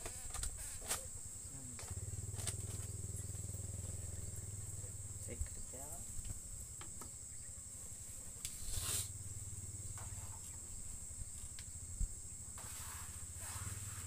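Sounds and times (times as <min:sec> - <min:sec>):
insect drone: 0:00.0 - 0:14.0.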